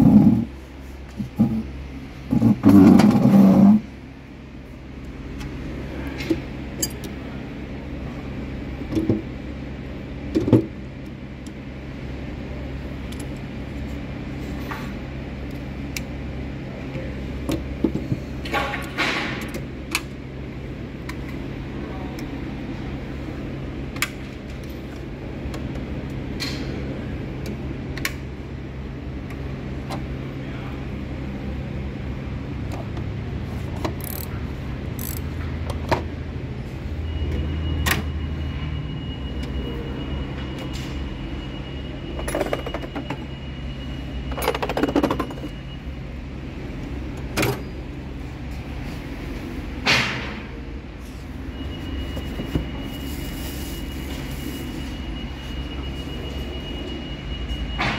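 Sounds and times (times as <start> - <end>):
low background hum: 0.0 - 57.9.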